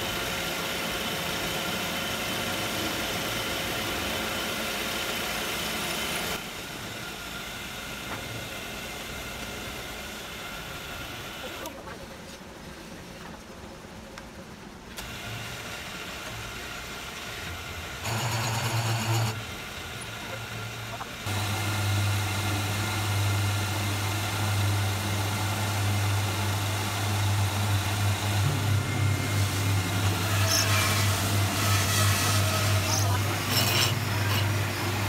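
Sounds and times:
milling machine motor humming: 0:17.5 - 0:35.0
end mill cutting wood: 0:18.0 - 0:19.5, 0:21.3 - 0:35.0.

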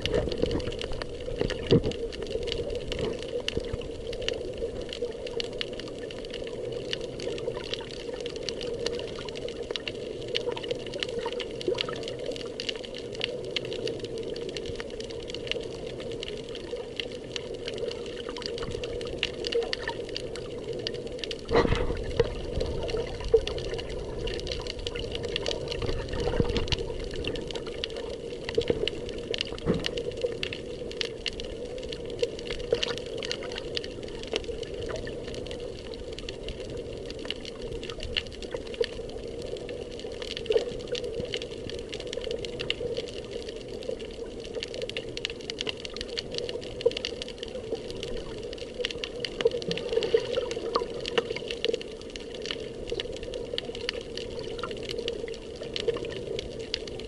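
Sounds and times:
muffled underwater wash: 0:00.0 - 0:57.0
small underwater clicks and crackles: 0:00.0 - 0:57.0.

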